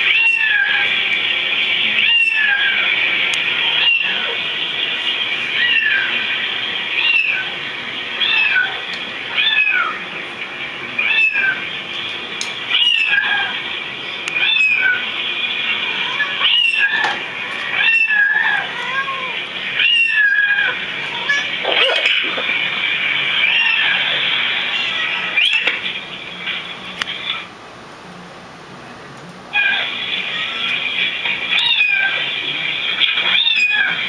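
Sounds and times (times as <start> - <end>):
cats meowing: 0.0 - 10.1, 11.0 - 11.7, 12.7 - 13.6, 14.3 - 22.6, 23.2 - 25.8, 29.5 - 34.0.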